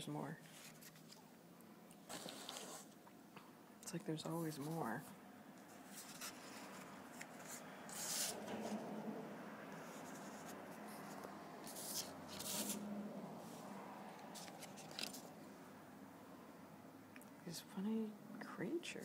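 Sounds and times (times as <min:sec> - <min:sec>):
paper rustling and sliding: 0:00.5 - 0:01.2, 0:02.1 - 0:03.0, 0:05.7 - 0:08.9, 0:09.8 - 0:12.8, 0:14.2 - 0:15.3.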